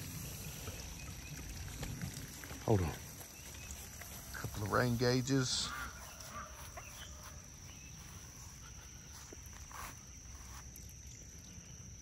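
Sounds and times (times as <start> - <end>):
insects trilling: 0.0 - 12.0
light rustles or footsteps: 3.1 - 11.0.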